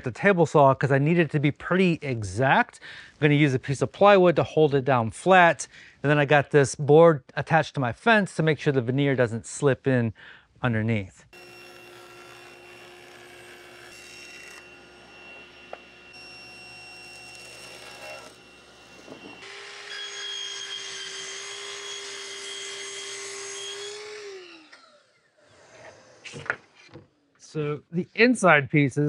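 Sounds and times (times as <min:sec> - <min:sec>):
miter saw motor whine: 0:11.4 - 0:13.0, 0:13.9 - 0:20.8
table saw ripping wood: 0:11.4 - 0:26.8.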